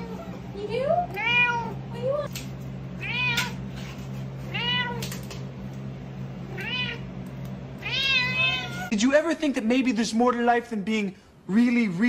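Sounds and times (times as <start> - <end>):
steady low hum: 0.0 - 12.0
cat meowing: 1.1 - 1.8, 3.0 - 3.6, 4.5 - 5.2, 6.5 - 7.1, 7.8 - 8.9.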